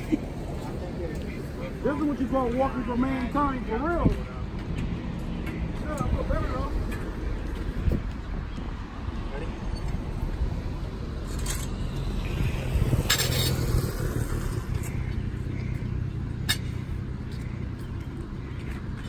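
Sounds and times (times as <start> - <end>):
vehicle engine humming: 0.0 - 19.0
scraping clatter: 12.9 - 15.2.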